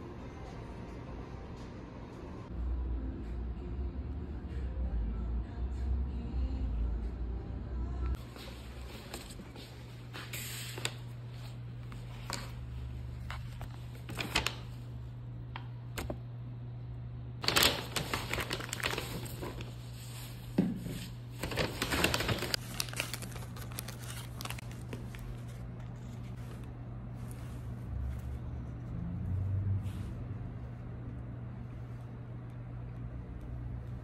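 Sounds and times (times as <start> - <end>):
paper bag rustling and crinkling: 13.2 - 14.8, 17.4 - 28.5.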